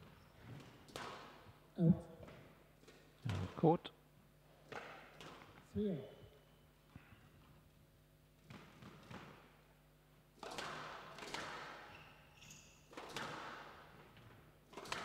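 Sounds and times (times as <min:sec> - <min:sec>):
squash ball hitting rackets and walls: 0:00.0 - 0:01.6, 0:04.6 - 0:05.7, 0:08.4 - 0:15.0
shoe squeak: 0:11.9 - 0:12.9.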